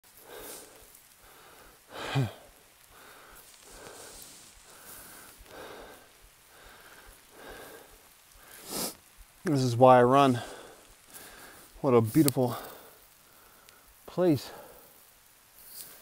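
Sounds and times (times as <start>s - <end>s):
voiced sigh: 0.2s - 8.9s
person breathing hard: 0.2s - 9.0s, 10.3s - 11.8s, 12.5s - 15.0s.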